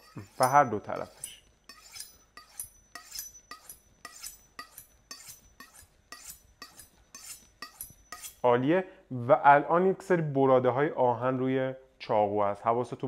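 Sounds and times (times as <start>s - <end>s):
knife scraping on honing rod: 0.0s - 8.5s.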